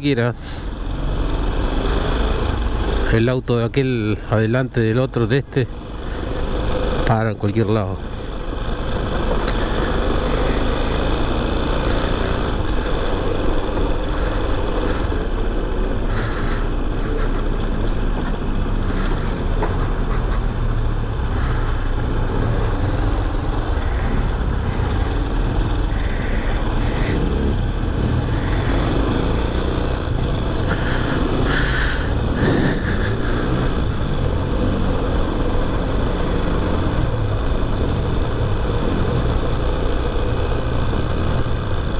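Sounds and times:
motorcycle engine running: 0:00.0 - 0:41.9.

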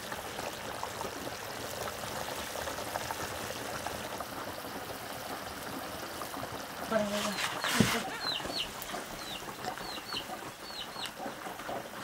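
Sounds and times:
water running: 0:06.6 - 0:10.7.

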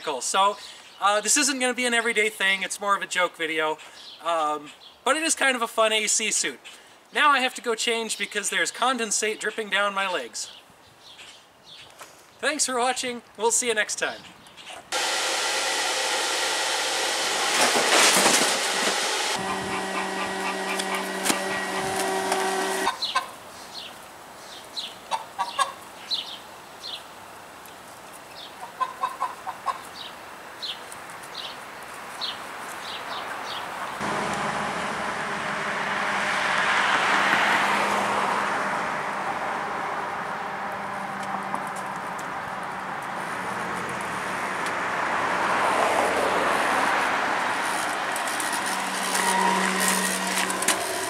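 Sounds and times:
rush of noise: 0:14.9 - 0:22.9, 0:34.0 - 0:40.4, 0:47.4 - 0:51.0
steady hum: 0:15.0 - 0:22.9, 0:34.0 - 0:38.6
geese honking: 0:19.3 - 0:23.3, 0:48.4 - 0:51.0.

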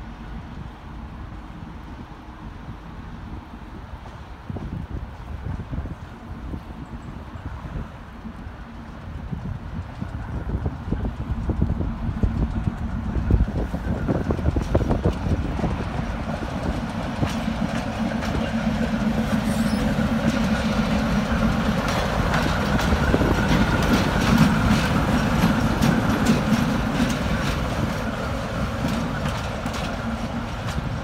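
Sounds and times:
diesel locomotive engine running: 0:00.0 - 0:31.0
wheels clicking over rail joints: 0:08.0 - 0:31.0.

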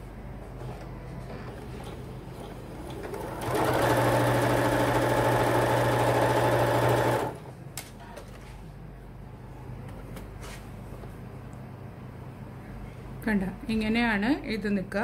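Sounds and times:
sewing machine stitching: 0:01.8 - 0:07.5.

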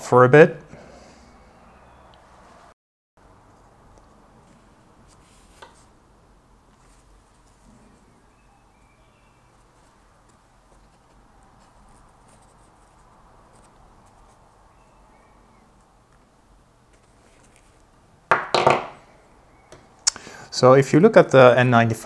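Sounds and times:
soft clicks and rustles: 0:16.9 - 0:18.0.

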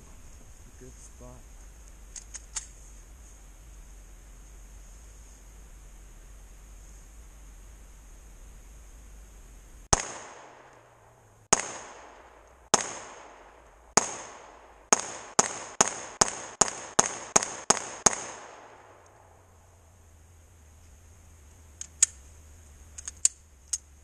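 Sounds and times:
pistol shots echoing: 0:09.9 - 0:19.1.

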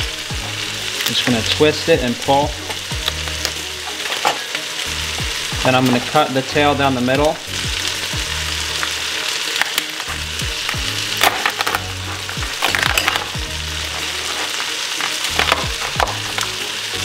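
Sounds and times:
vegetables sizzling in butter: 0:00.0 - 0:17.0
knife crunching through shell: 0:12.6 - 0:13.3.

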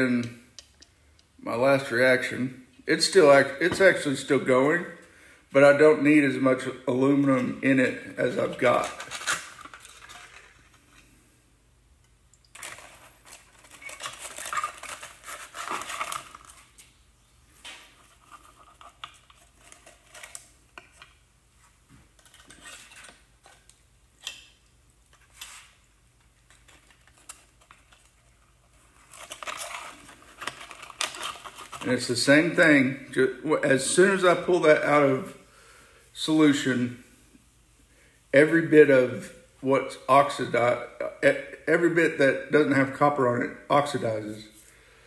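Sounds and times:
aluminium foil crinkling: 0:08.4 - 0:11.0, 0:12.5 - 0:16.9, 0:17.8 - 0:21.2, 0:22.2 - 0:24.4, 0:26.4 - 0:32.1.

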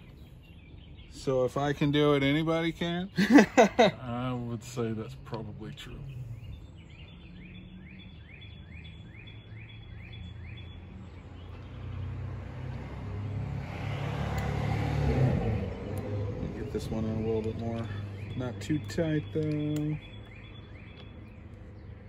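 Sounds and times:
car passing by: 0:11.5 - 0:18.1.

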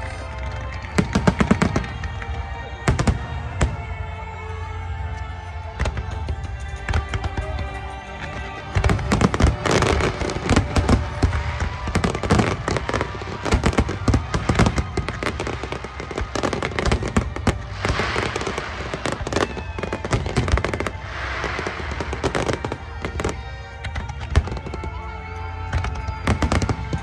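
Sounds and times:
firework crackling hiss: 0:08.8 - 0:24.9
firework shells bursting: 0:08.9 - 0:24.9.

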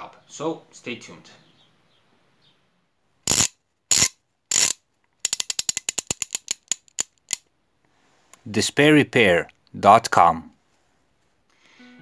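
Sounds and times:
mechanical clicks: 0:03.3 - 0:07.5.

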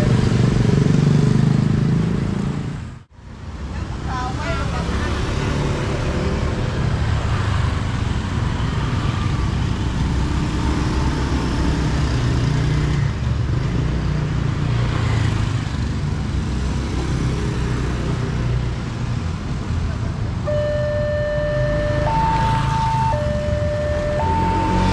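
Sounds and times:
motorcycle passing close: 0:00.0 - 0:02.7, 0:21.5 - 0:24.9
motorcycle engines passing: 0:00.0 - 0:03.0, 0:03.8 - 0:24.9.

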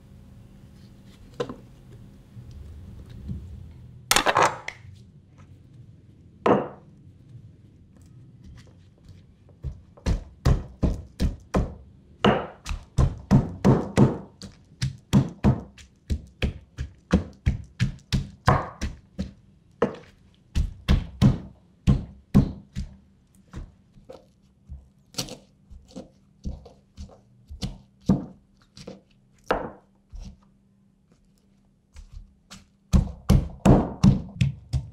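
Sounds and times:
stone pestle knocking in mortar: 0:09.6 - 0:22.9, 0:32.9 - 0:34.9.

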